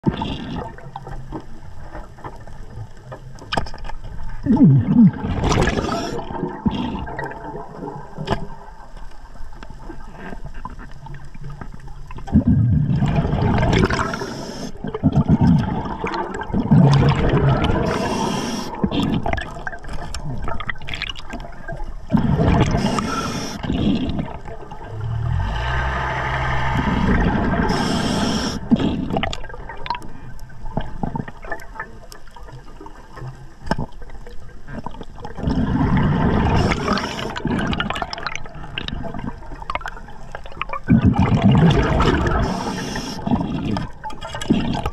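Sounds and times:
bubbles rushing and gurgling: 0.0s - 44.9s
diver breathing through regulator: 5.6s - 6.3s, 13.8s - 14.8s, 17.7s - 19.3s, 22.2s - 24.2s, 24.9s - 29.2s, 35.4s - 37.5s, 42.1s - 43.9s
low hum: 24.6s - 28.8s.

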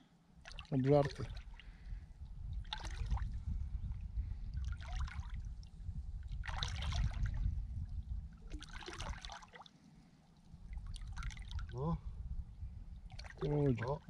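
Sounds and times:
low steady rumble: 0.0s - 8.8s, 10.6s - 14.0s
river water splashing: 2.6s - 3.2s, 6.4s - 7.2s, 8.5s - 9.8s.

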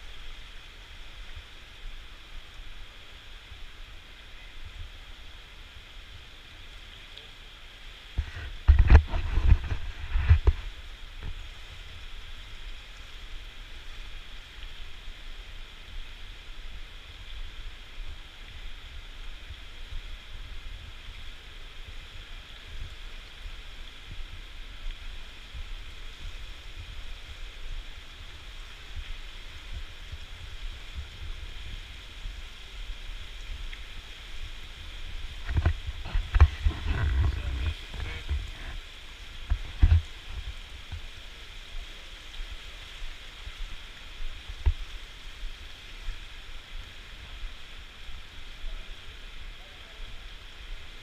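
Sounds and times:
low rumbling bumps: 35.0s - 41.1s.

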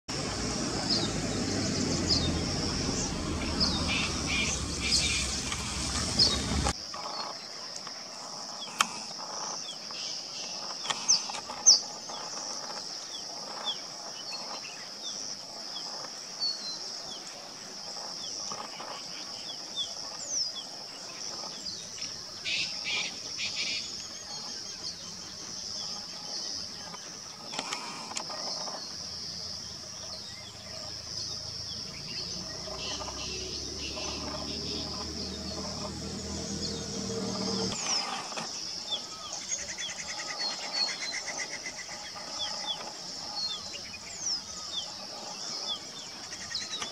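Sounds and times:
low rumbling noise: 0.1s - 6.8s, 30.1s - 38.9s
bird chirping: 0.1s - 7.5s, 18.0s - 46.9s
high insect drone: 0.1s - 46.9s.

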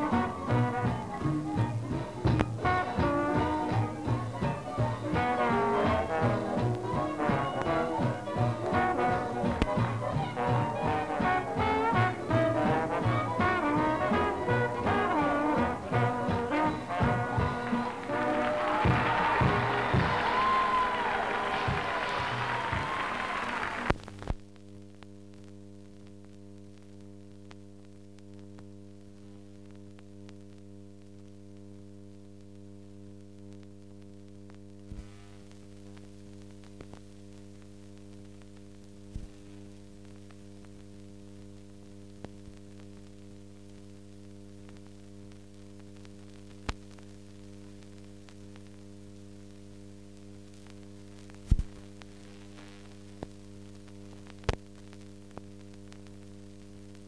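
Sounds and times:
electrical mains hum: 0.0s - 57.0s.

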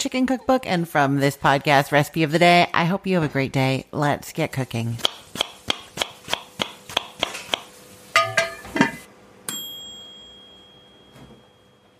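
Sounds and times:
knife chopping on cutting board: 5.0s - 7.7s
bright bell ding: 9.5s - 11.9s.

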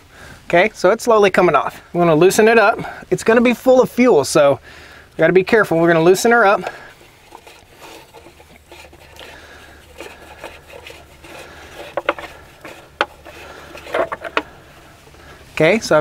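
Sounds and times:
metal filter scraping: 5.2s - 15.8s.

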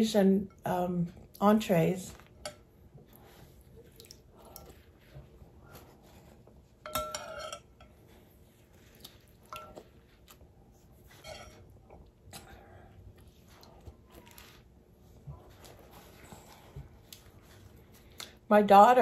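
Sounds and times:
metal spoon clinking glass bowl: 6.8s - 8.0s.

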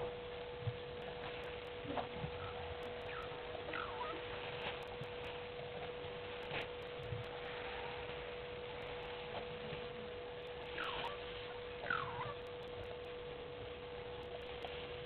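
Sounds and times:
outdoor background hiss: 0.0s - 15.0s
steady hum: 0.0s - 15.0s
animal call: 2.4s - 4.4s, 10.6s - 12.6s.

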